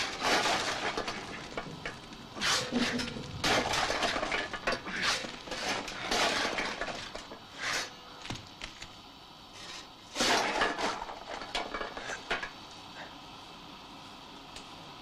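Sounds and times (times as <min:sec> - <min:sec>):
crashes and clatters: 0:00.0 - 0:07.5, 0:10.2 - 0:12.5.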